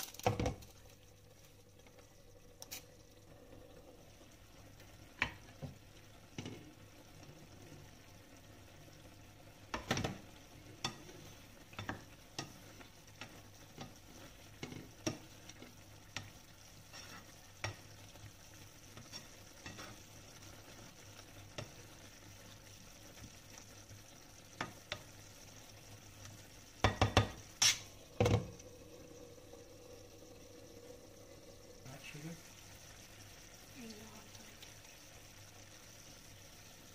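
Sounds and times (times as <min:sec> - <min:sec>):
faint sizzle: 0:00.0 - 0:36.9
spoon scraping a pan: 0:09.7 - 0:20.5, 0:26.8 - 0:28.5.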